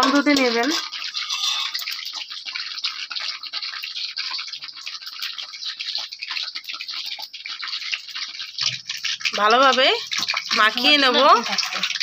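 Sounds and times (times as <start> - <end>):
wet squishing of batter mixed by hand: 0.0 - 12.0.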